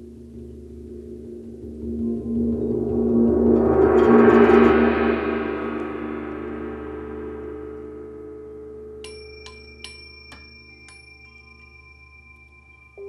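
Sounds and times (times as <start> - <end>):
gong ringing: 3.5 - 13.0
metal chime strikes: 8.9 - 13.0.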